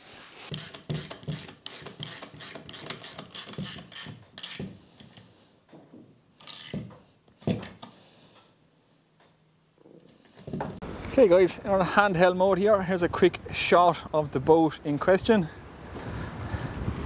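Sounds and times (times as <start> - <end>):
ratcheting spanner clicking: 0.5 - 5.3, 6.4 - 6.8.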